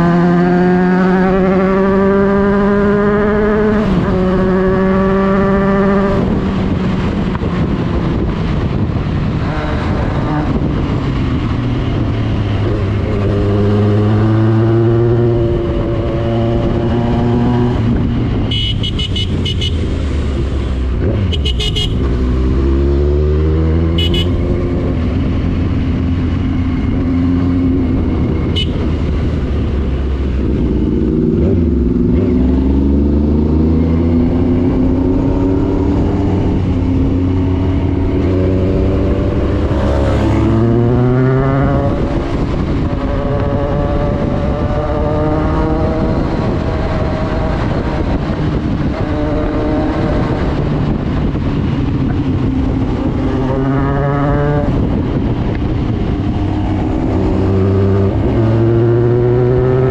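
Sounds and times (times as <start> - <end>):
motorcycle engine accelerating: 0.0 - 59.9
wind rushing over microphone: 0.0 - 59.9
short horn toots: 24.0 - 24.4.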